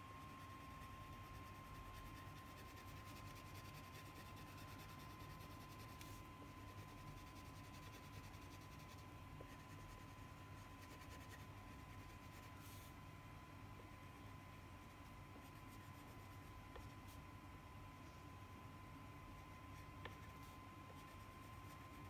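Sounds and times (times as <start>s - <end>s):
low steady hum: 0.0s - 22.0s
thin steady whine: 0.0s - 22.0s
crayon scratching on paper: 0.3s - 12.9s, 19.6s - 22.0s.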